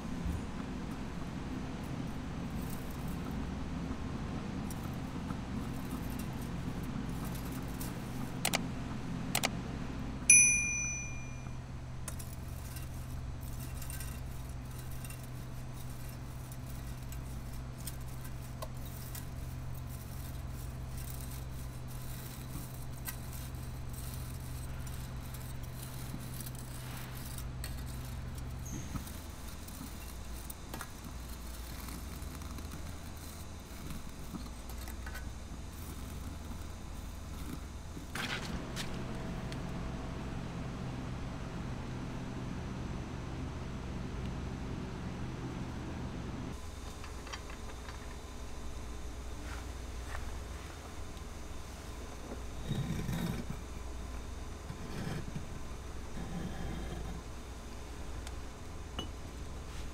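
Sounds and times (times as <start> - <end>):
furnace electrical hum: 0.0 - 59.9
ringing metallic ding: 10.3 - 11.6
metal rod tapping crucible: 10.3 - 12.9.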